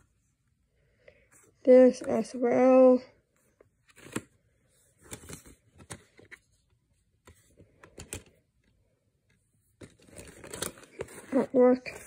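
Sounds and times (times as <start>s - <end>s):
paper insert rustling: 9.8s - 12.0s.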